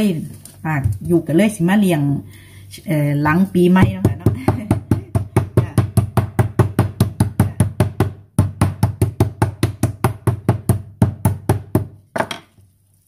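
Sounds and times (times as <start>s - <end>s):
meat pounded on a board: 3.8s - 12.4s.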